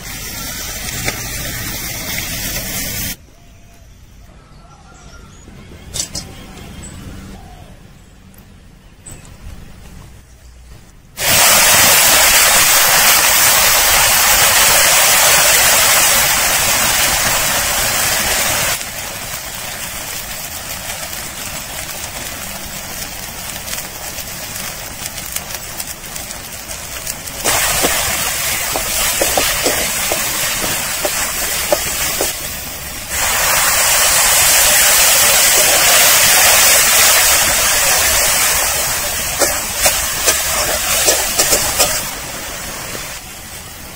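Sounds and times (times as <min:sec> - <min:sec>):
paste sizzling in hot oil: 0:11.2 - 0:43.2
spatula scraping: 0:27.4 - 0:32.6, 0:37.3 - 0:42.1.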